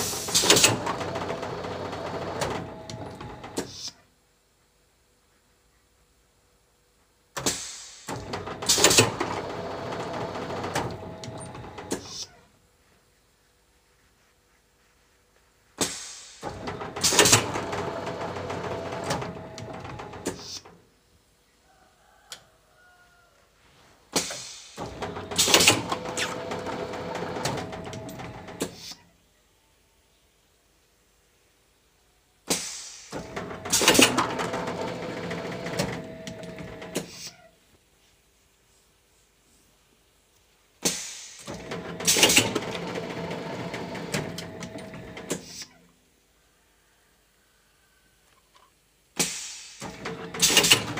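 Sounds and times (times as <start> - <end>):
machine hissing rush: 0.0 - 0.8
mechanical clatter: 0.0 - 3.8, 7.4 - 12.2, 16.4 - 20.5, 24.8 - 28.8, 33.2 - 37.1, 41.4 - 45.6, 49.8 - 50.9
machine hissing: 0.0 - 3.9, 15.8 - 20.7, 24.2 - 29.0
sharp mechanical knocks: 7.4 - 9.5, 15.8 - 20.6, 24.2 - 28.9, 32.5 - 34.9, 40.8 - 42.8, 49.2 - 50.9.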